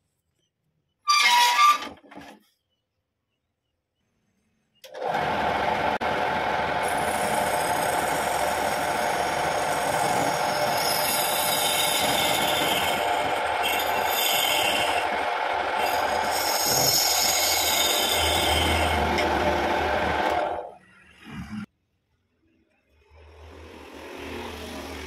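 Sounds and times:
wood lathe humming: 4.9s - 20.6s.

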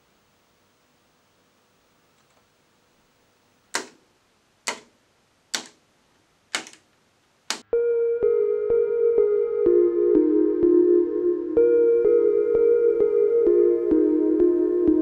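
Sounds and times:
sharp clicks: 3.7s - 4.0s, 4.6s - 5.8s, 6.5s - 6.9s, 7.5s - 7.7s
electronic synth music: 7.6s - 15.0s.

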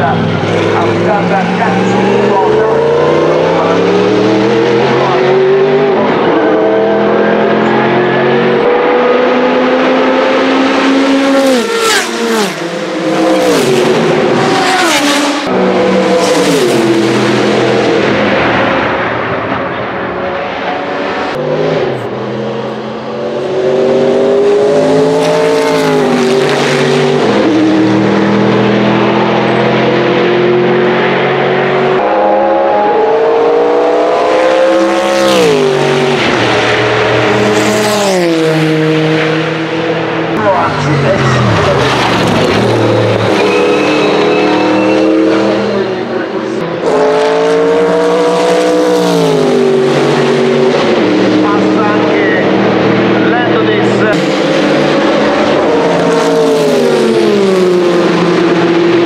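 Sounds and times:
race car engines passing: 0.0s - 59.0s.

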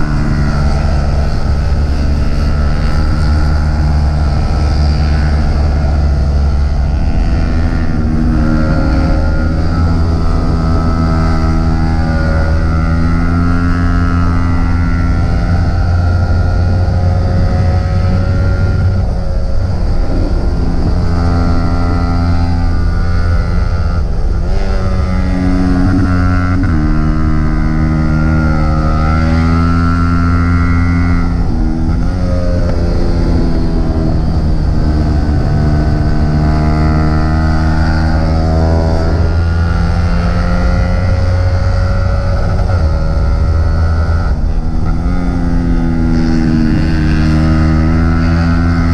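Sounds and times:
motorcycle engine revving: 0.0s - 48.9s
wind rumble on microphone: 0.0s - 48.9s.

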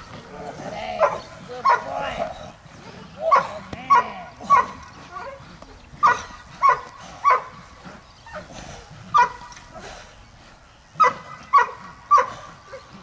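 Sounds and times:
dog barking: 1.0s - 1.9s, 3.3s - 4.8s, 6.0s - 7.5s, 9.1s - 9.4s, 11.0s - 12.9s.

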